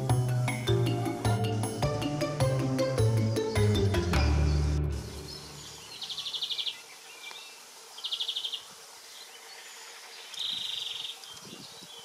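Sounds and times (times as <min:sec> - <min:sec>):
insect chirping trills: 0:04.6 - 0:12.0.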